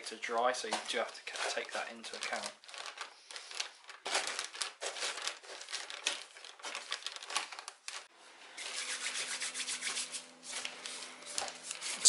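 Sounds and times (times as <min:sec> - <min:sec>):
plastic bag crinkling: 0:00.4 - 0:08.1.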